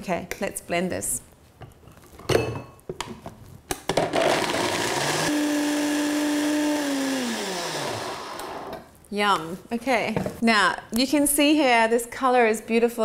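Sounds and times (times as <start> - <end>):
blender running: 4.0 - 8.8.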